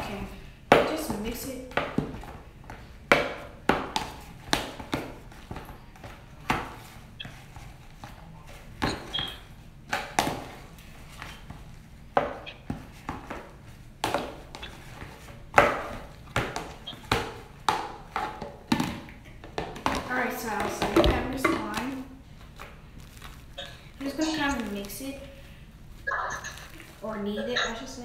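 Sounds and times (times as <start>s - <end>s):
utensil knocking on plastic tub: 16.4s - 21.9s.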